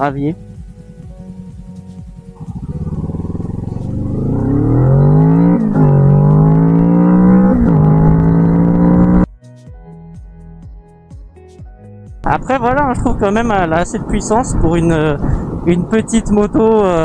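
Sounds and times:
motorcycle engine accelerating: 0.0s - 9.3s.

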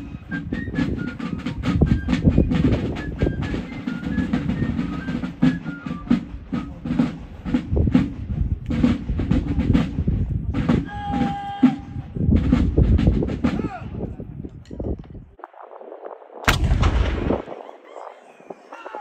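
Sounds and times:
steady low rumble: 14.2s - 17.9s
loud sharp bang: 16.4s - 17.6s.

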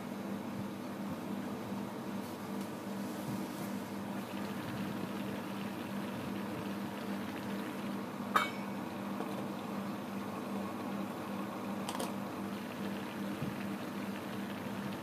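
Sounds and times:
rice boiling in a covered pan: 0.1s - 15.0s
metal lid clinking on pan: 8.4s - 8.7s.

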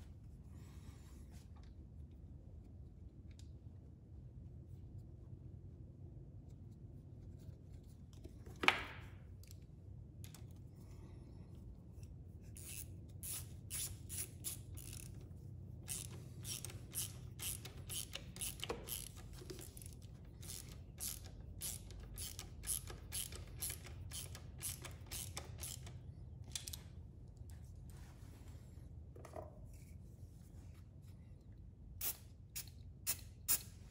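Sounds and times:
hand ratchet clicking: 12.6s - 15.2s, 15.9s - 26.8s.

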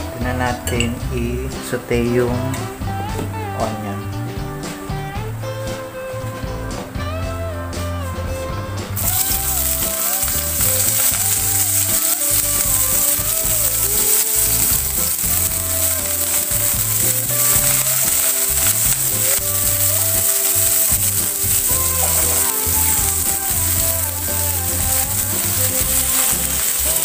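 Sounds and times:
background music: 0.0s - 27.0s
onions sizzling in oil: 8.9s - 27.0s.

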